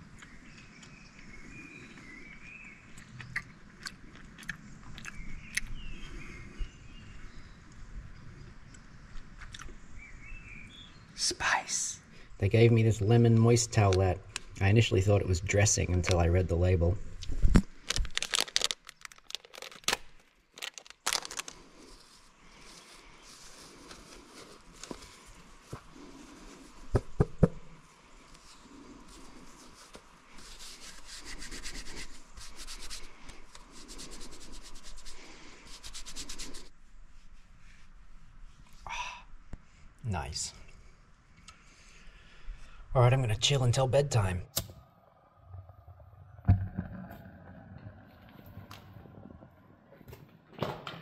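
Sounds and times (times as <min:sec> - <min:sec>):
person chewing: 0:03.0 - 0:05.7, 0:09.4 - 0:09.8
plastic sachet crinkling and tearing: 0:17.5 - 0:21.7.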